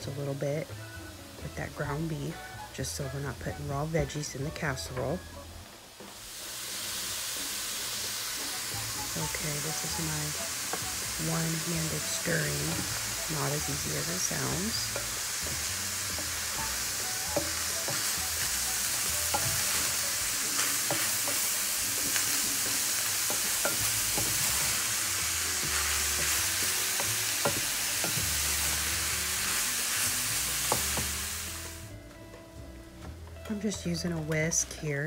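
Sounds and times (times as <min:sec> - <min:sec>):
meat sizzling in a skillet: 0:00.0 - 0:05.2, 0:05.8 - 0:31.9
spatula scraping and tapping pan: 0:11.9 - 0:28.9, 0:30.0 - 0:31.2.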